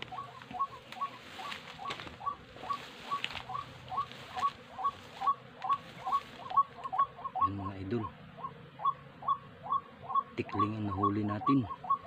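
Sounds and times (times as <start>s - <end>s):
rustling through brush: 0.0s - 7.2s.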